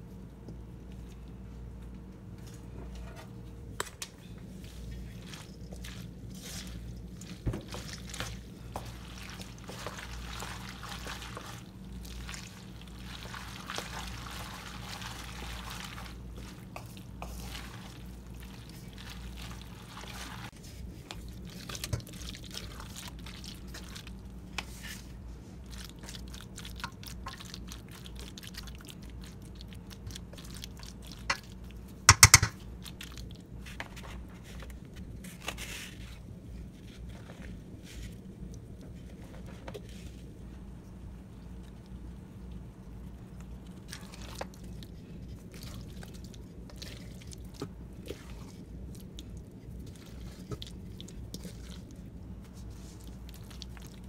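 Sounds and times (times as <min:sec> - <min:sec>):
low steady hum: 0:00.0 - 0:54.0
spoon stirring in metal bowl: 0:31.1 - 0:32.7.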